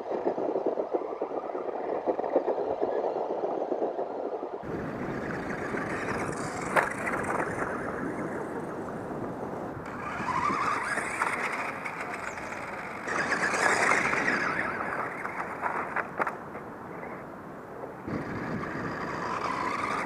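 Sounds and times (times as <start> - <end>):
toy car motor whining: 9.9 - 16.0, 18.1 - 20.0.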